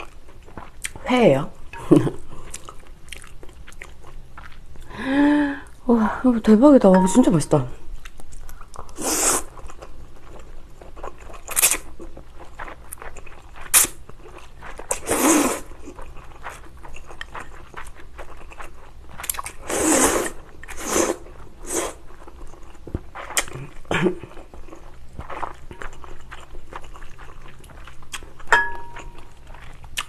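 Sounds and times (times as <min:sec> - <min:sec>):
wet chewing and smacking: 0:00.0 - 0:01.0, 0:02.0 - 0:04.9, 0:07.9 - 0:19.7, 0:20.3 - 0:30.0
noodle slurps: 0:15.0 - 0:15.7, 0:19.6 - 0:22.0.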